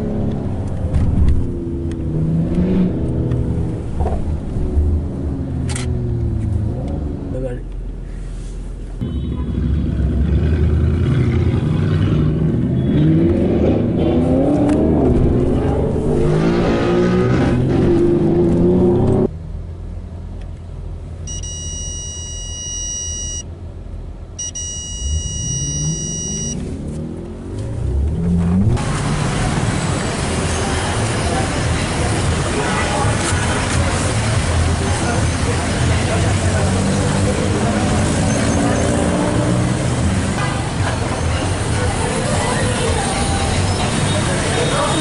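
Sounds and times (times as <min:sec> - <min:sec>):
road noise: 0:00.0 - 0:45.0
car engine accelerating hard: 0:09.6 - 0:19.3, 0:25.0 - 0:44.5
high electronic beeps: 0:21.3 - 0:23.5, 0:24.4 - 0:26.6.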